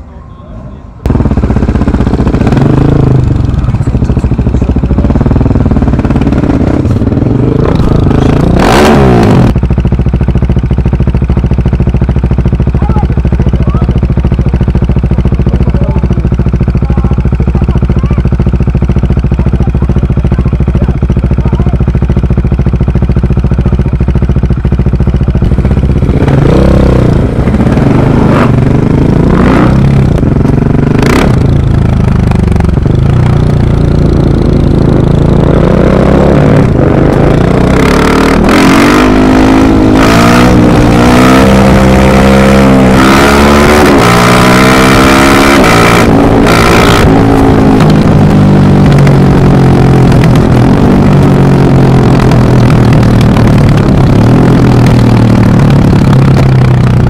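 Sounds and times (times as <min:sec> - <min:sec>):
rally car engine revving: 0:05.8 - 0:09.6, 0:26.2 - 0:32.5, 0:33.2 - 0:56.4.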